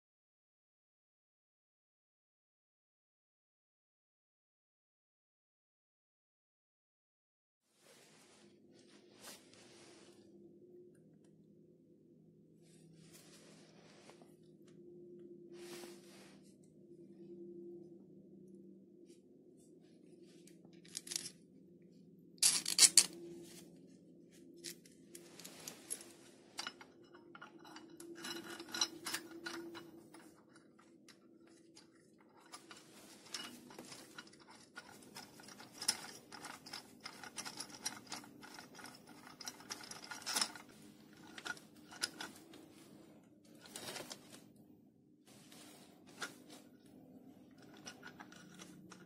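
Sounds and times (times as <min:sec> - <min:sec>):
metal screws clicking and scraping: 0:20.8 - 0:21.4, 0:22.4 - 0:23.2, 0:24.6 - 0:42.6, 0:47.5 - 0:49.0.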